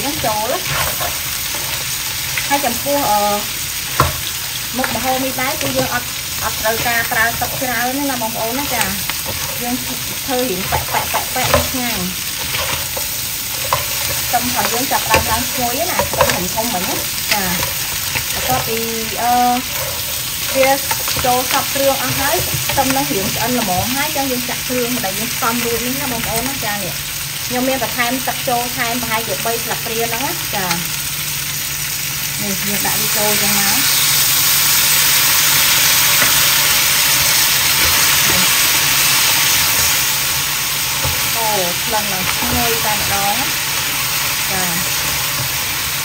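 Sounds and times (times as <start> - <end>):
crab sizzling in a wok: 0.0 - 46.0
spatula scraping and knocking: 0.6 - 1.8, 8.7 - 18.7, 19.6 - 23.9.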